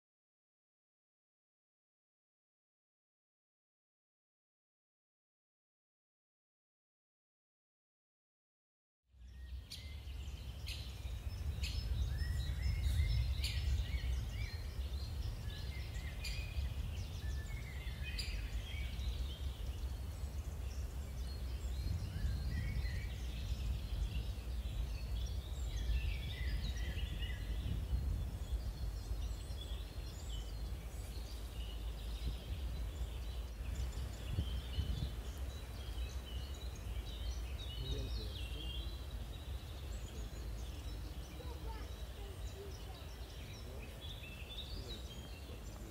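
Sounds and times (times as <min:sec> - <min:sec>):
small birds chirping: 0:09.1 - 0:45.9.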